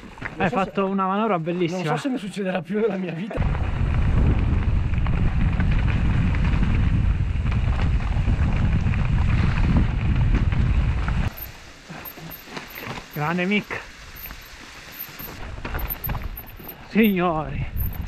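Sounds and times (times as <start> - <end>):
wind buffeting microphone: 3.4 - 11.4, 15.4 - 18.0.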